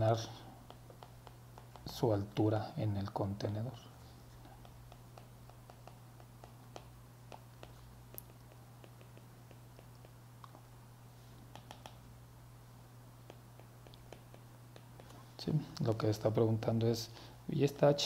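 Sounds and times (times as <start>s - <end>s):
steady low hum: 0.0s - 18.0s
stylus tapping on glass screen: 11.5s - 12.0s.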